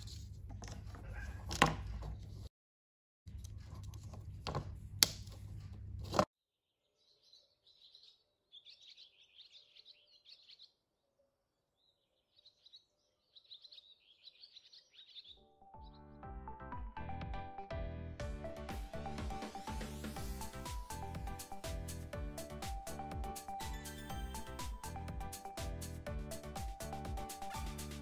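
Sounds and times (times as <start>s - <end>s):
faint bird chirping: 6.7s - 16.2s
music: 15.4s - 28.0s.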